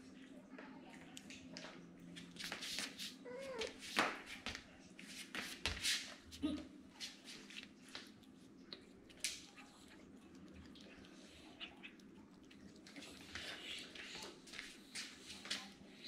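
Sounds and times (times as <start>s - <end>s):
cat chewing and smacking: 7.0s - 16.0s.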